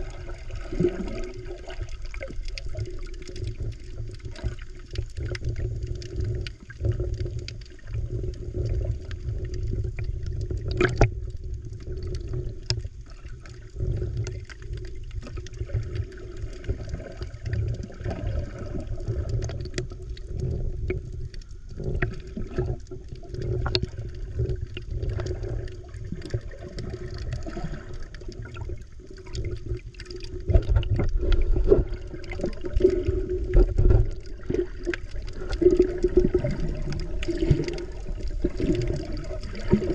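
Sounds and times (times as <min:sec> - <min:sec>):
muffled underwater rushing water: 0:00.0 - 0:39.9.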